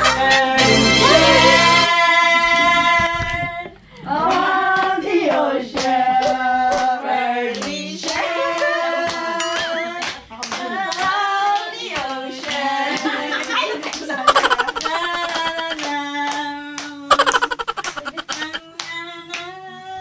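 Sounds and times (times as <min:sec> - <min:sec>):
people singing: 0:00.0 - 0:20.0
rhythmic hand clapping: 0:04.2 - 0:19.6.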